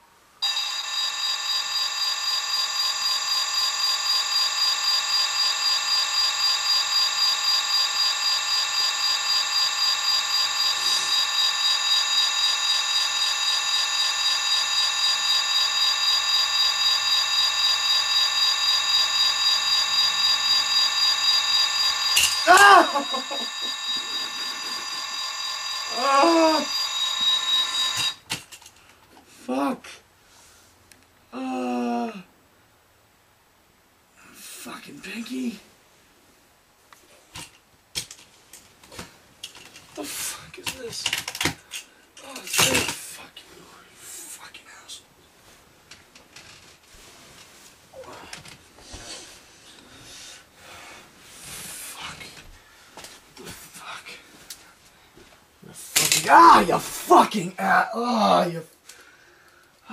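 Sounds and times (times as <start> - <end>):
electronic alarm clock beeping: 0.4 - 28.3
person speaking: 56.1 - 58.7.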